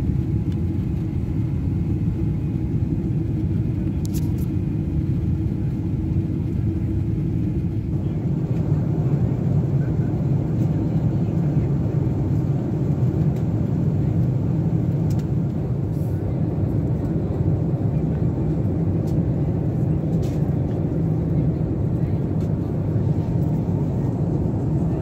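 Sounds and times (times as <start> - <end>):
airplane cabin drone: 0.0 - 25.0.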